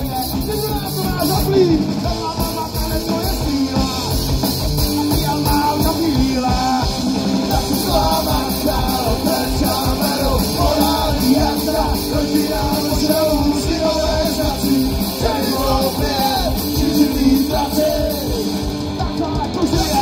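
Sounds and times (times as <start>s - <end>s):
drum kit: 0.0s - 20.0s
electric guitars: 0.0s - 20.0s
man singing: 0.0s - 20.0s.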